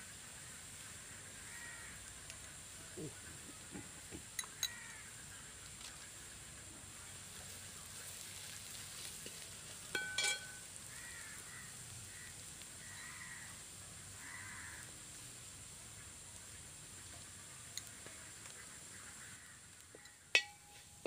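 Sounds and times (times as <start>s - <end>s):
steady low hiss: 0.0s - 21.0s
faint bird calls: 0.1s - 6.8s, 10.5s - 14.9s, 16.0s - 21.0s
metal spoon stirring in plate: 9.9s - 10.6s, 20.0s - 21.0s
spoon clinking against metal plate: 9.9s - 10.6s, 20.0s - 21.0s.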